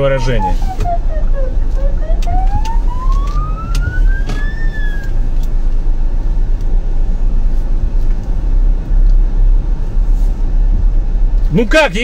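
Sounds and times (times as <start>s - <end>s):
siren wailing: 0.0s - 5.1s
car cabin rumble: 0.0s - 12.0s.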